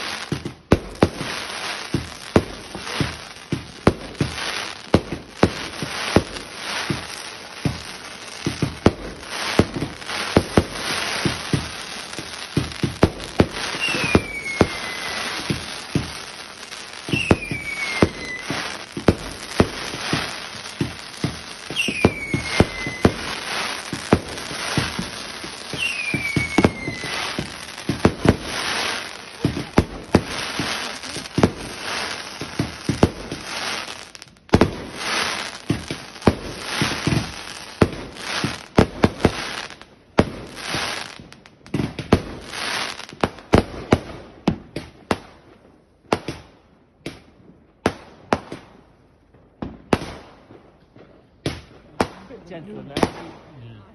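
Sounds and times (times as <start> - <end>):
fireworks bangs and crackles: 0.0 - 53.9
firework whistles falling in pitch: 13.6 - 16.1, 17.0 - 18.9, 21.2 - 23.6, 25.7 - 28.1.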